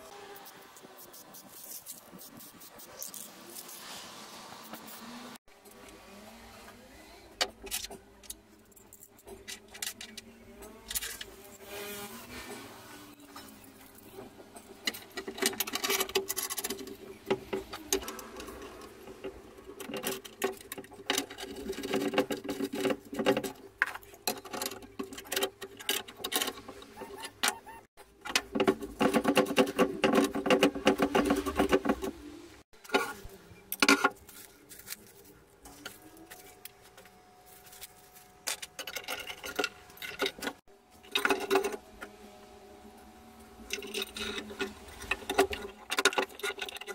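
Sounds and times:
metal nuts clicking and rattling: 0:13.4 - 0:27.6, 0:38.4 - 0:41.8, 0:43.7 - 0:46.9.

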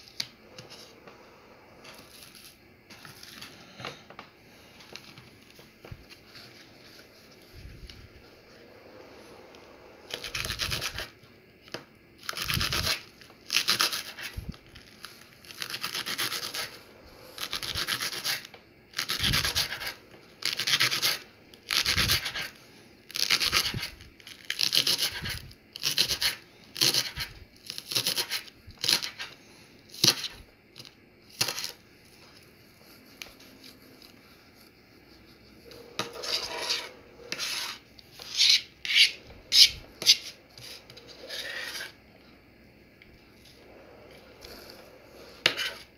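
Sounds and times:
knife slicing green onion: 0:12.3 - 0:14.3, 0:24.5 - 0:29.3
blade scraping cutting board: 0:35.6 - 0:42.0, 0:44.4 - 0:45.9.

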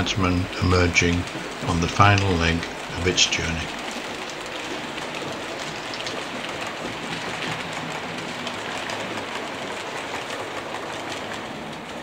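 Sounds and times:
faint track clicks: 0:00.0 - 0:09.2
model train wheels rumbling on rail: 0:00.0 - 0:12.0.

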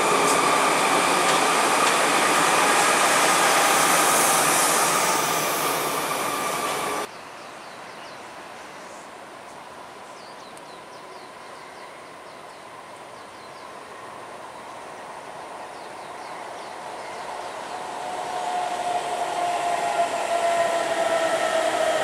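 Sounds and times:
train running with faint whine: 0:00.0 - 0:22.0
birds chirping: 0:10.1 - 0:18.1.

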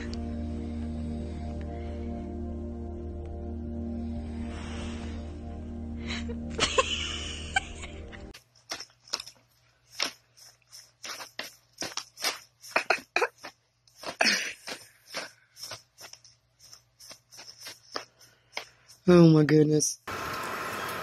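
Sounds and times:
background music: 0:00.0 - 0:08.4
paper bag crinkling: 0:08.4 - 0:18.6.

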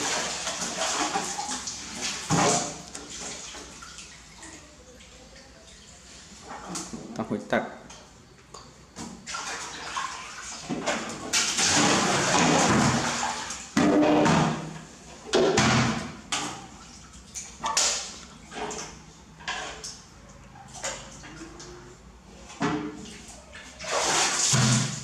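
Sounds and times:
water splashing onto tiled floor: 0:00.0 - 0:06.0, 0:09.2 - 0:14.5, 0:15.3 - 0:18.9, 0:23.4 - 0:25.0.

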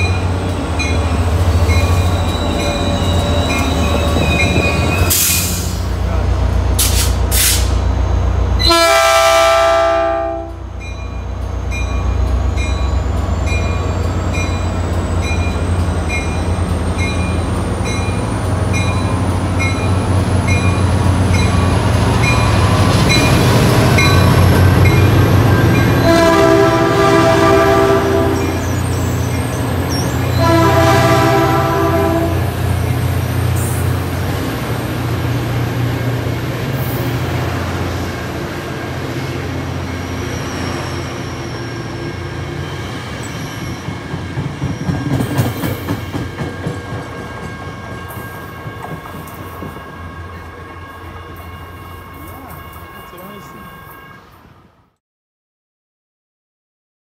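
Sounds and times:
diesel locomotive engine: 0:00.0 - 0:55.0
train horn blasts: 0:08.6 - 0:10.7, 0:25.8 - 0:28.7, 0:30.2 - 0:32.6.

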